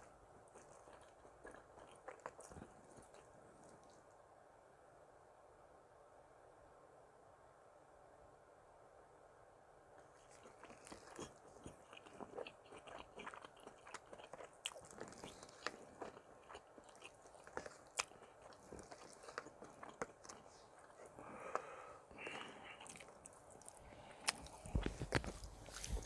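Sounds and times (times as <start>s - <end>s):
chewing and wet mouth smacks: 0.0s - 4.0s, 10.0s - 26.0s.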